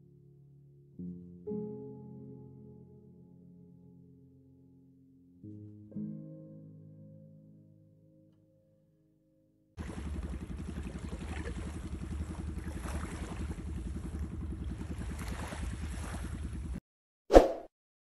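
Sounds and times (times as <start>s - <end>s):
motorboat engine pulsing: 9.8s - 16.8s.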